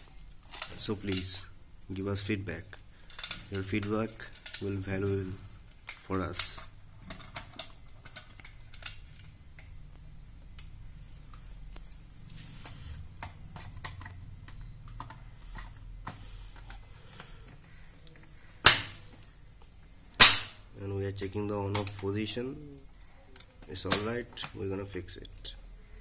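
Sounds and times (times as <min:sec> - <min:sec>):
circuit breaker snapping: 0:18.6 - 0:19.0, 0:20.1 - 0:20.6.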